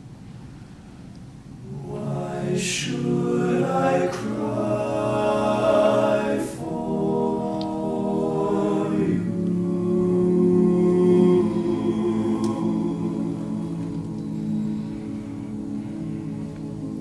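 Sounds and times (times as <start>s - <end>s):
male a cappella group singing: 1.6s - 15.0s.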